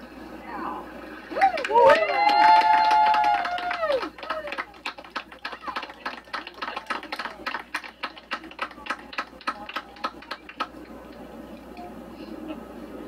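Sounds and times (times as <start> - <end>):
people clapping: 1.3 - 11.9.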